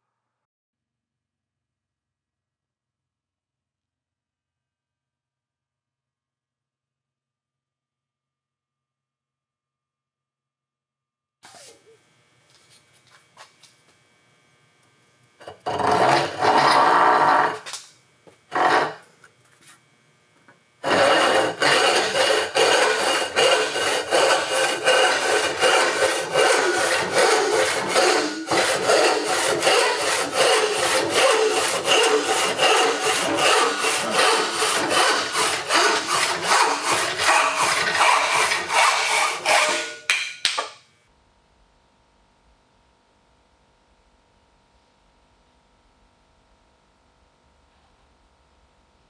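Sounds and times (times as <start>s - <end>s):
hand saw cutting plywood: 15.4s - 17.8s, 18.5s - 19.1s, 20.8s - 40.2s.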